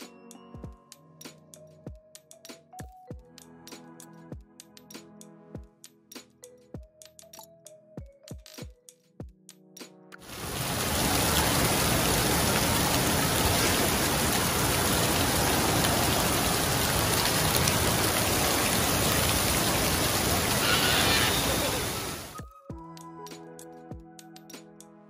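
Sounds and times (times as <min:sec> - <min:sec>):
water rushing down a slide: 0:10.3 - 0:22.4.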